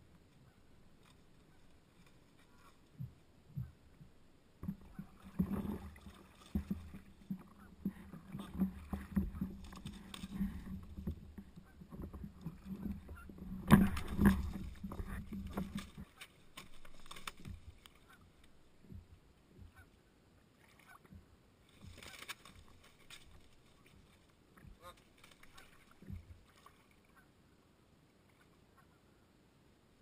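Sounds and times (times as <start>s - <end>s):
water sloshing and splashing: 0.4s - 19.9s, 20.6s - 27.3s
paddle knocking against board: 4.6s - 17.8s
goose wings flapping: 11.6s - 18.2s, 21.8s - 26.8s.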